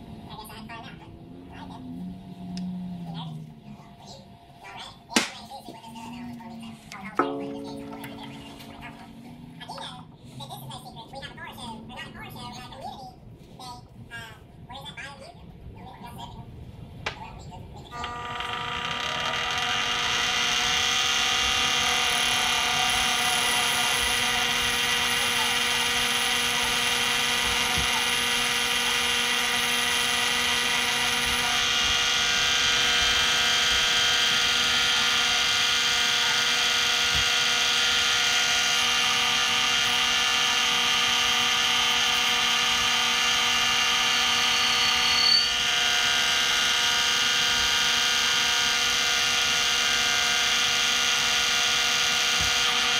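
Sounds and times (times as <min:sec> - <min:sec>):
lathe motor whine: 0:18.0 - 0:52.9
short high squeal: 0:44.5 - 0:45.6.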